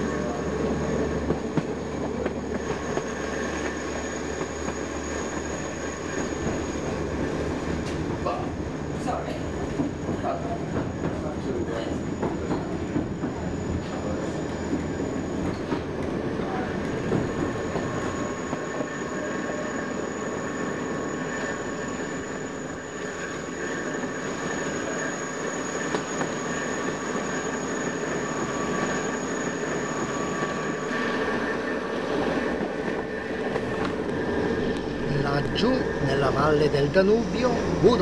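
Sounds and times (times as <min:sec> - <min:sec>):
train running gear rumble: 0:00.0 - 0:38.0
high-pitched wheel squeal: 0:02.5 - 0:07.4, 0:16.4 - 0:38.0.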